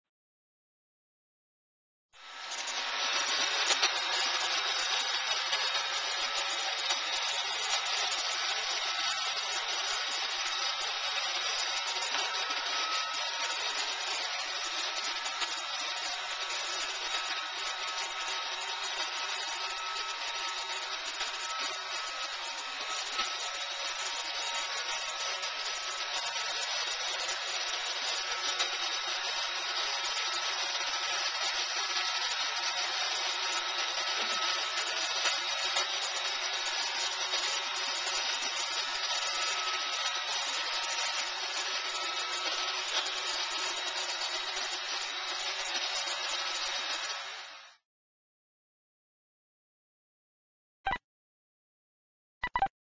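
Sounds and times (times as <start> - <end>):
robot vacuum whirring: 2.2 - 47.7.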